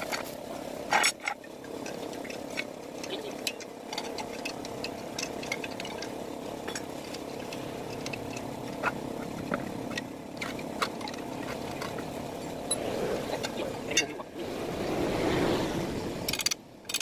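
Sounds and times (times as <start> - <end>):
steady background hum: 0.0 - 17.0
light metal clicks and clinks: 0.9 - 12.0.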